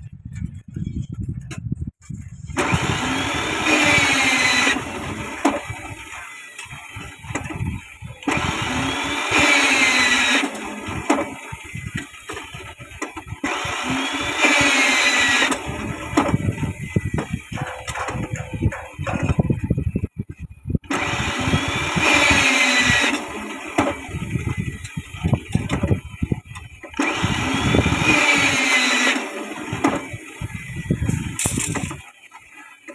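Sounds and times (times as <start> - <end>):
rebar bending machine motor whining: 2.5 - 20.2, 20.8 - 32.9.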